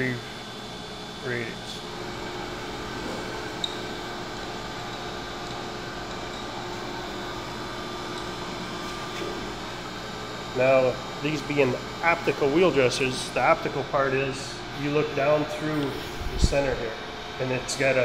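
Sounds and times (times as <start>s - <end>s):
surface grinder humming: 1.7s - 13.7s.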